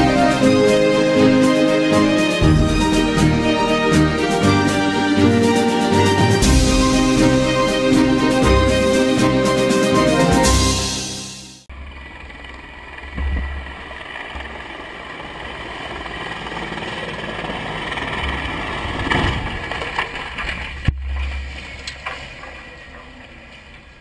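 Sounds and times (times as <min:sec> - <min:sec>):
engine rumble: 0:11.6 - 0:24.0
wind: 0:11.6 - 0:24.0.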